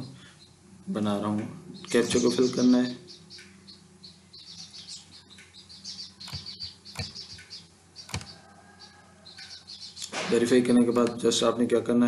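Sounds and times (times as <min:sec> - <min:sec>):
small birds chirping: 0:00.0 - 0:12.0
computer mouse clicks: 0:06.2 - 0:08.4.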